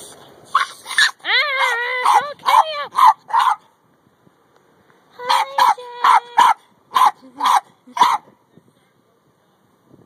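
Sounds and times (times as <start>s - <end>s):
dog barking: 0.6s - 3.6s, 5.3s - 8.2s.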